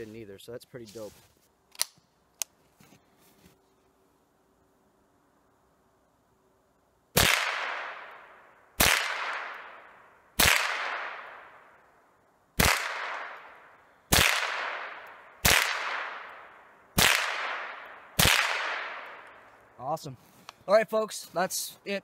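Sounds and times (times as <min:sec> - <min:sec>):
rifle shots echoing: 0:07.2 - 0:11.8, 0:12.6 - 0:19.4.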